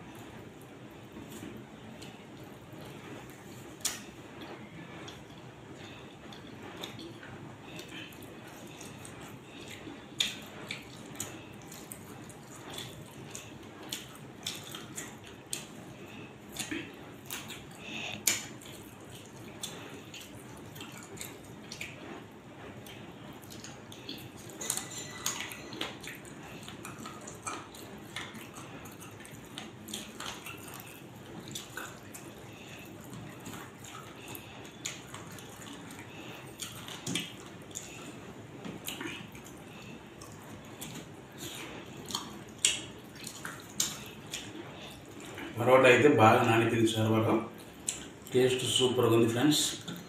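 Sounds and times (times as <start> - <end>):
chewing: 0.0 - 45.6, 47.5 - 48.9, 49.6 - 50.0
fingers squelching wet food: 6.3 - 22.0, 22.7 - 45.5.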